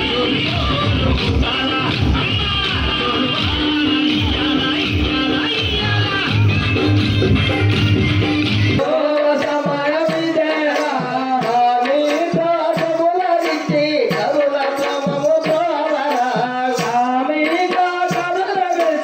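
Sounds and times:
drum beating: 0:00.0 - 0:19.0
devotional singing: 0:08.8 - 0:19.0.

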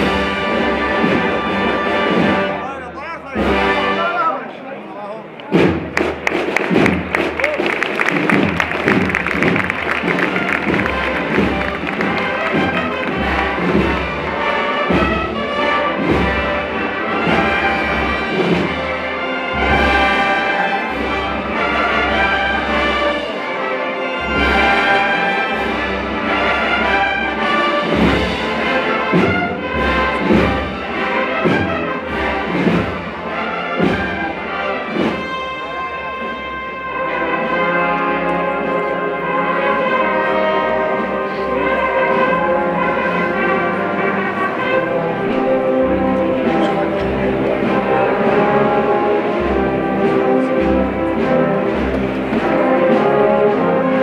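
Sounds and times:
brass band playing a march: 0:00.0 - 0:54.0
deep drum beat: 0:05.5 - 0:19.0.

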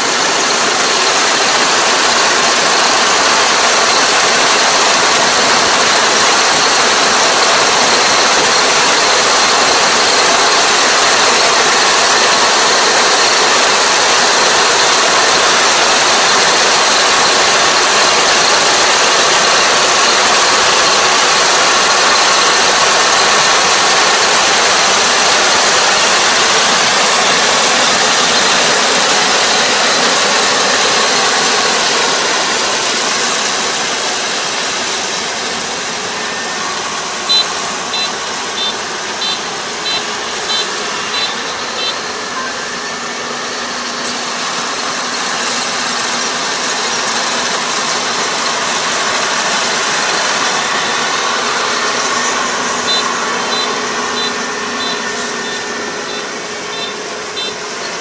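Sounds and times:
combine harvester running: 0:00.0 - 0:58.0.

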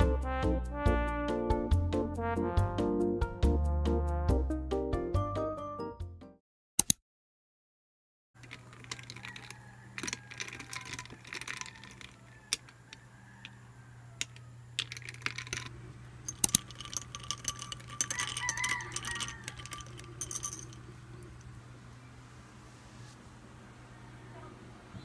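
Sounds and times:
spoon clinking glass and ice: 0:08.4 - 0:13.0, 0:14.2 - 0:21.5.

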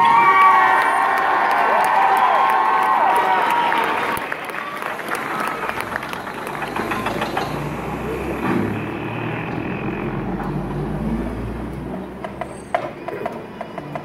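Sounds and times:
stadium crowd applause: 0:00.0 - 0:09.0.

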